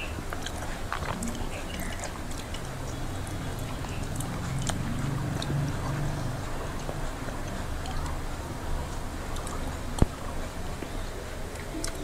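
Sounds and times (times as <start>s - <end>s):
wet chewing and lip-smacking: 0.0s - 8.2s, 11.5s - 12.0s.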